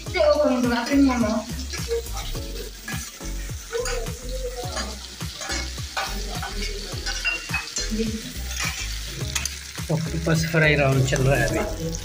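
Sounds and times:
food sizzling in hot oil: 0:00.0 - 0:12.0
metal spatula scraping and clicking: 0:01.7 - 0:03.2, 0:04.8 - 0:07.9, 0:08.5 - 0:09.7.

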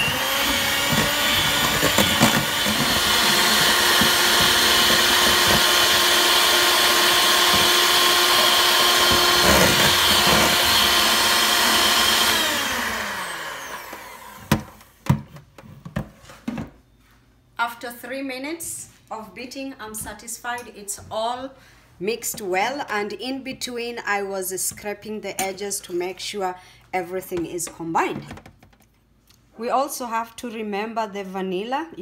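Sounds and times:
electric hand mixer whining: 0:00.0 - 0:14.8.

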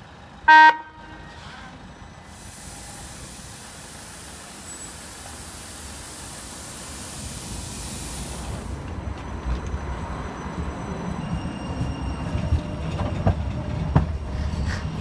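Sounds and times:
tram rumbling: 0:00.0 - 0:15.0
high hiss of air: 0:02.3 - 0:08.8.

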